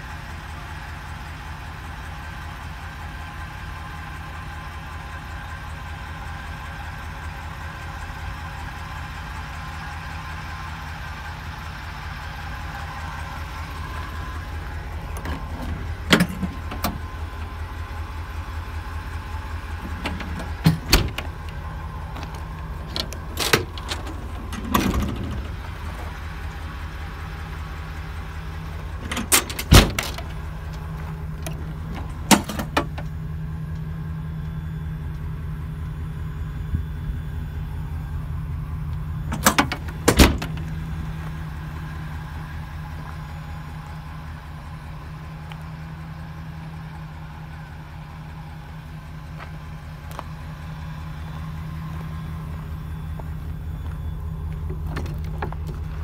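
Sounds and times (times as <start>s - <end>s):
truck engine idling: 0.0s - 56.0s
metal clacks of compartment doors: 15.0s - 17.5s, 19.8s - 26.2s, 28.8s - 33.2s, 39.2s - 40.9s, 53.8s - 56.0s.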